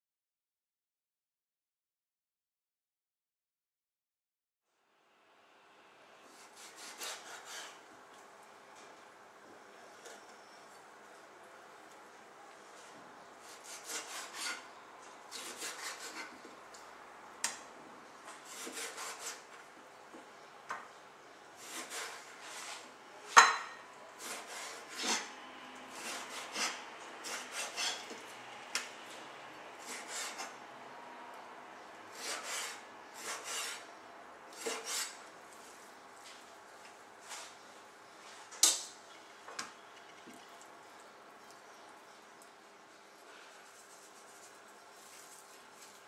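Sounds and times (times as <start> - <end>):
knife scraping through fish: 6.4 - 7.8, 13.4 - 14.7, 15.3 - 16.4, 18.4 - 19.4, 21.6 - 22.9, 24.2 - 25.3, 25.9 - 28.2, 29.8 - 30.6, 32.1 - 33.9, 34.6 - 35.2.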